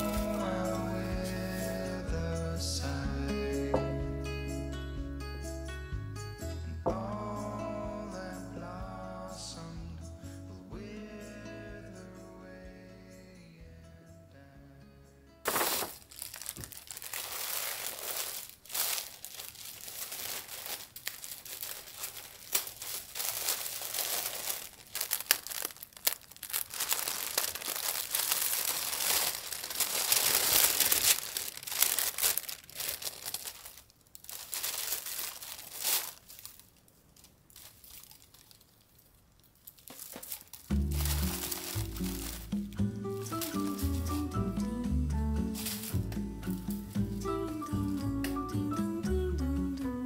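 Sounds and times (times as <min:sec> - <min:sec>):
tissue paper rustling: 0:00.0 - 0:02.2, 0:15.5 - 0:48.2.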